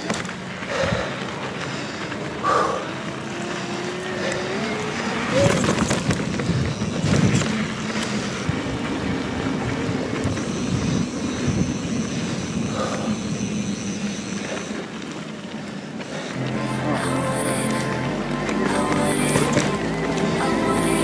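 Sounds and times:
bike tyres on wet trail: 0:00.0 - 0:21.0
wind noise on microphone: 0:05.2 - 0:13.8.

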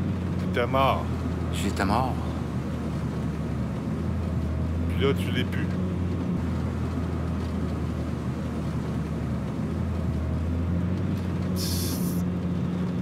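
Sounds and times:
car engine and road noise: 0:00.0 - 0:13.0
brief hiss: 0:11.6 - 0:12.2.

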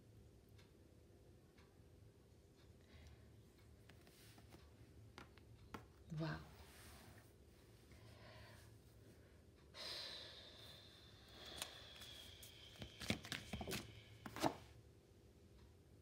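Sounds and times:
cards being shuffled: 0:12.7 - 0:14.6.

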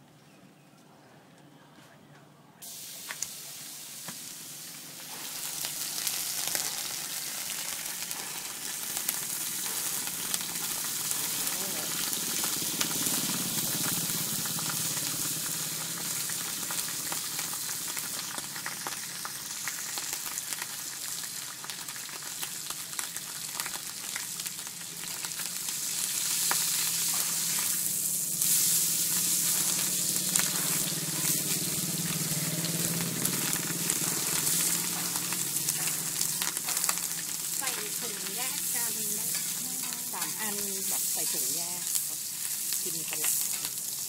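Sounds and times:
bacon sizzling on a griddle: 0:02.6 - 0:44.0
metal spatula scraping a pan: 0:39.3 - 0:40.4.

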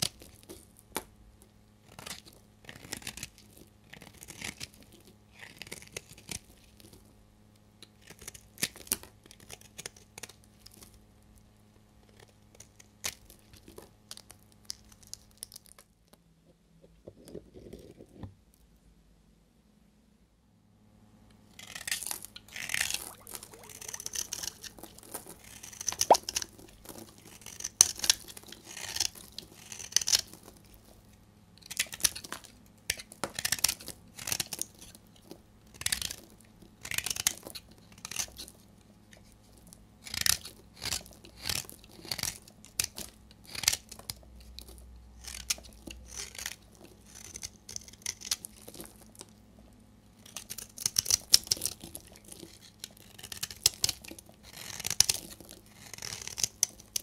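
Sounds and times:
knife blade scraping soap: 0:01.8 - 0:07.0, 0:07.9 - 0:10.3, 0:21.5 - 0:30.4, 0:31.6 - 0:35.0, 0:35.7 - 0:39.4, 0:40.0 - 0:49.0, 0:50.2 - 0:57.0.

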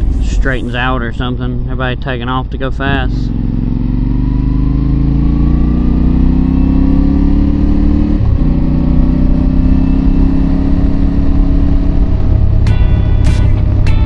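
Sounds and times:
motorcycle engine accelerating: 0:00.0 - 0:14.0
wind rumble on microphone: 0:10.3 - 0:12.7.

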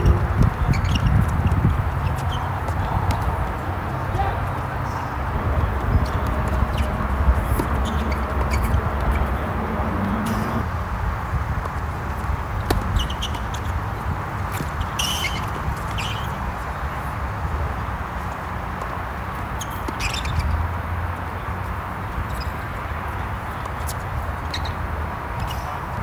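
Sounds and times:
shoe squeaks: 0:00.0 - 0:03.3, 0:05.8 - 0:10.7, 0:12.6 - 0:13.9, 0:14.5 - 0:16.4, 0:19.6 - 0:20.8, 0:22.2 - 0:22.7, 0:23.6 - 0:25.8
low outdoor rumble: 0:00.0 - 0:14.2
ball bouncing: 0:05.7 - 0:10.6
rackets striking tennis ball: 0:05.8 - 0:10.7, 0:12.5 - 0:13.7.

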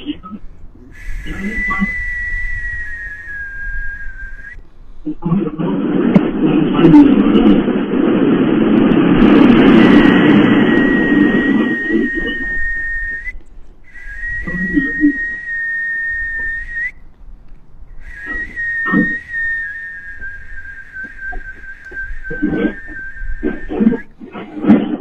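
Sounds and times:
high whistling tone: 0:01.0 - 0:04.7, 0:09.3 - 0:17.0, 0:17.9 - 0:24.1
loud rushing noise: 0:05.8 - 0:13.1.

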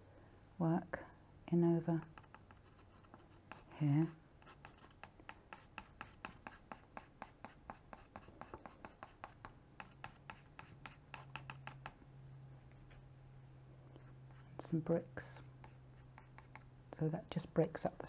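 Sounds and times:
palette knife tapping and scraping: 0:01.9 - 0:12.0, 0:15.2 - 0:16.7.

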